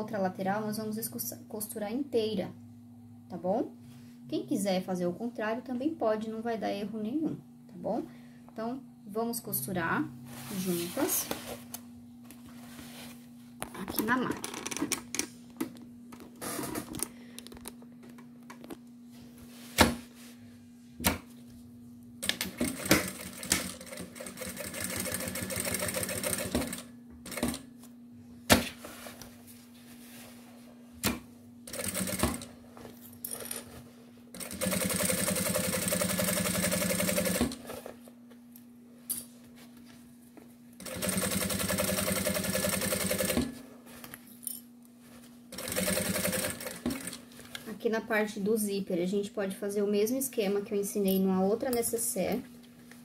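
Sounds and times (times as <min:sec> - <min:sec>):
faint steady hum: 0:00.0 - 0:53.0
industrial sewing machine stitching: 0:22.4 - 0:27.6, 0:31.7 - 0:32.5, 0:34.4 - 0:37.6, 0:40.8 - 0:43.5, 0:45.6 - 0:47.2.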